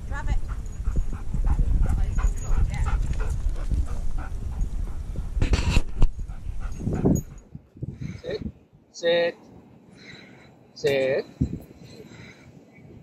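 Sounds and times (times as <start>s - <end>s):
dog panting: 0.1s - 7.5s.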